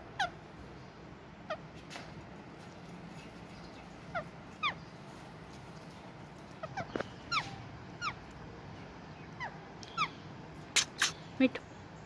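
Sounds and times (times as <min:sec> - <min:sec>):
parakeets chirping: 0:00.1 - 0:00.4, 0:01.4 - 0:01.7, 0:03.5 - 0:05.1, 0:06.5 - 0:11.4.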